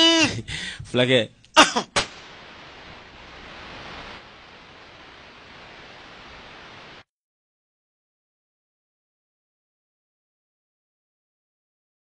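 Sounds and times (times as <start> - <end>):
recording hiss: 0.0 - 7.1.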